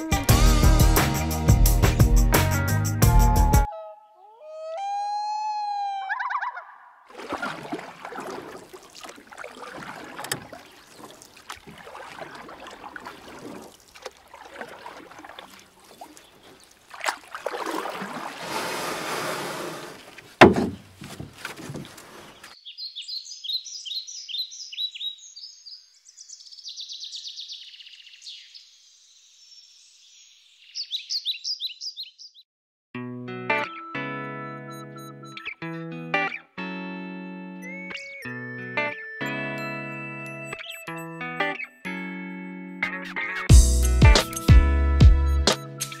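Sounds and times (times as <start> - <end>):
water splashing around kayak: 7.1 - 22.6
small birds chirping: 9.0 - 14.1, 15.4 - 16.9, 21.7 - 32.5
sharp knock: 20.4 - 20.8.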